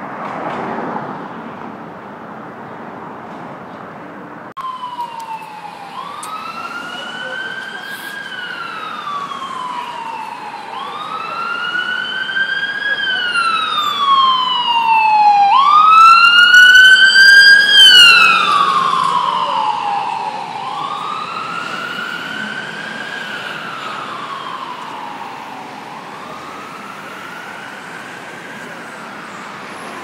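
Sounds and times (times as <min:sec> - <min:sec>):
emergency vehicle siren wailing: 0:04.5 - 0:30.0.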